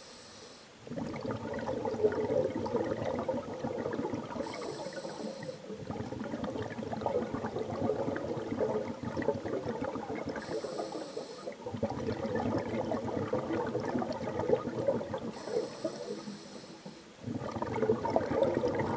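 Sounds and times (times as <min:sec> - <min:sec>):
brief hiss: 0:00.0 - 0:00.7
underwater crackling and bubbling: 0:00.8 - 0:18.9.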